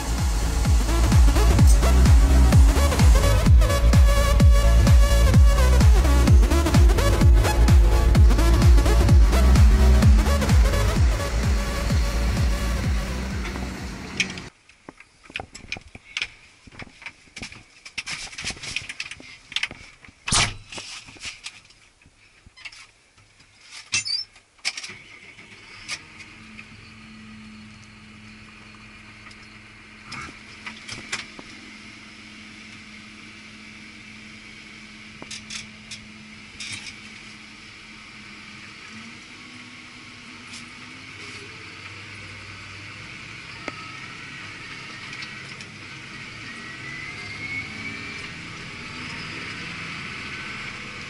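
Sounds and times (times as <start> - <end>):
diesel tractor engine idling: 0.0 - 14.5, 25.2 - 47.1.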